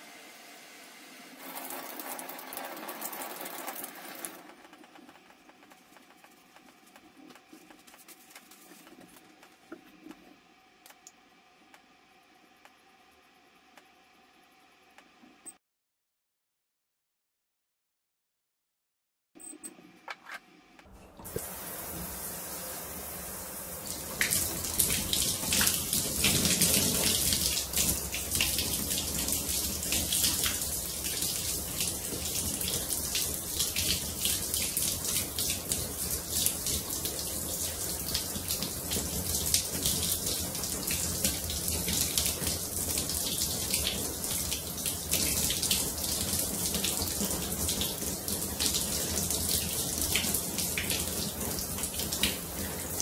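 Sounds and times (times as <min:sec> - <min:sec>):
shower spraying water on tiles: 0:00.0 - 0:10.3, 0:21.2 - 0:53.0
hands rubbing under spray: 0:05.6 - 0:09.6.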